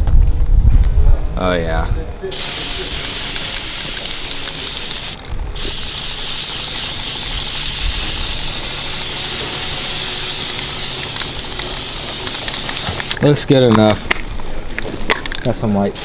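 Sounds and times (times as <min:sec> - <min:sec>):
spray paint can hissing: 0:02.3 - 0:13.2.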